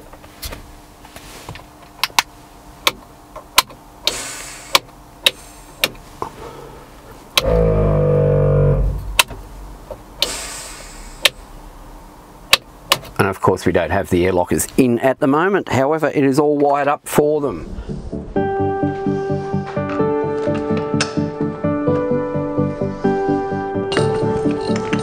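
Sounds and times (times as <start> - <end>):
short hisses: 10.2 - 11.3.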